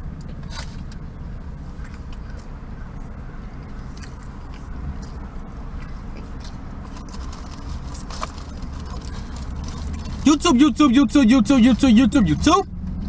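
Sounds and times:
low rumble of vehicles outside: 0.0 - 13.0
faint clicks and rustles: 0.2 - 10.3.

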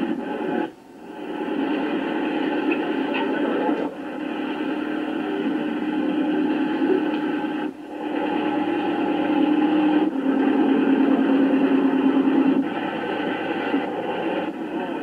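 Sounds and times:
radio hiss and static: 0.0 - 15.0.

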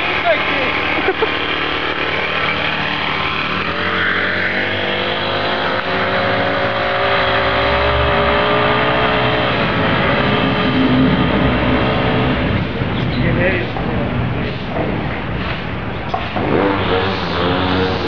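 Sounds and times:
motorized bicycle engine running: 0.0 - 6.8.

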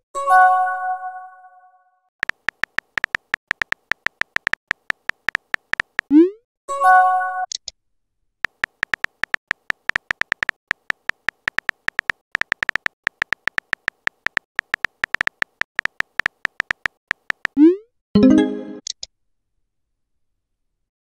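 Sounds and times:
on-screen keyboard tap clicks: 2.2 - 6.1, 8.4 - 17.6.

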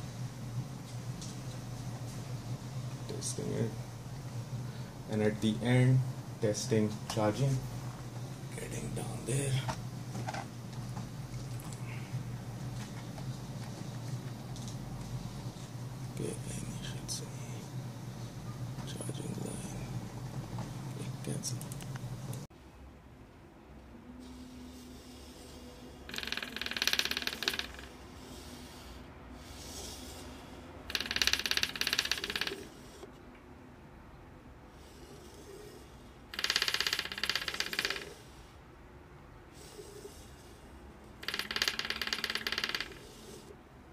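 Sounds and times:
phone buzzing: 26.1 - 27.9, 30.9 - 32.7, 36.3 - 38.2, 41.2 - 43.1.

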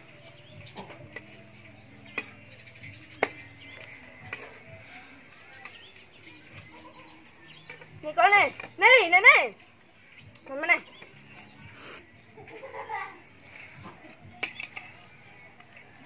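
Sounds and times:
faint bird chirps: 0.0 - 8.9.

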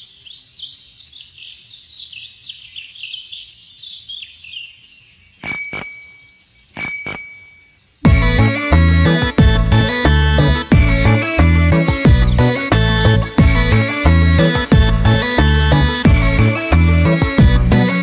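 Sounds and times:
birds chirping: 0.0 - 18.0
bicycle bell ringing: 5.4 - 7.8.

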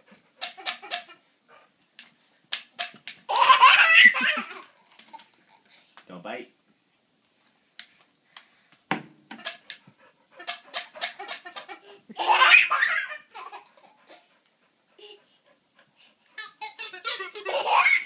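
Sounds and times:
toddler laughing: 0.4 - 1.2, 3.3 - 5.6, 10.4 - 14.2, 16.4 - 18.0.

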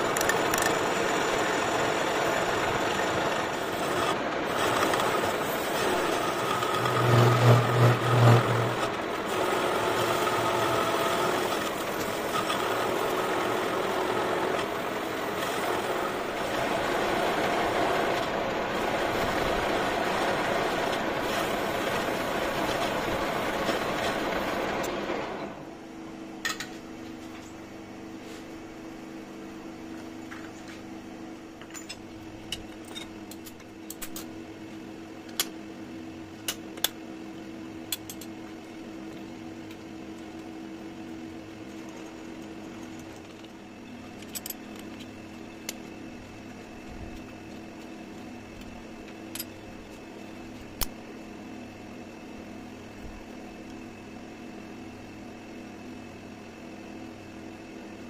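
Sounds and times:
metal lathe cutting steel: 0.1 - 24.6.

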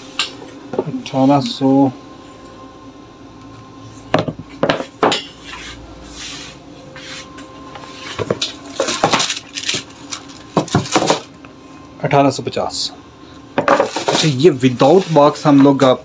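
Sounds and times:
knocks on a tabletop: 4.1 - 5.2
boxes clattering and rustling: 13.6 - 16.0.

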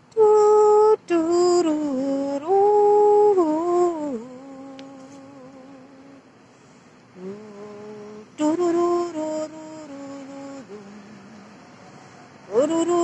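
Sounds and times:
person humming a melody: 0.0 - 6.2, 7.2 - 11.5, 12.5 - 13.0.

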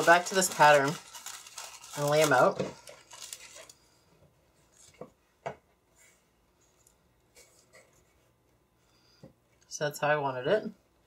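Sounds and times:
paper rustling: 0.0 - 3.8.

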